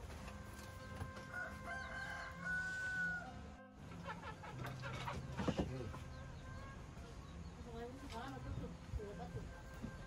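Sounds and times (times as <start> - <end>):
rooster crowing: 1.2 - 3.4.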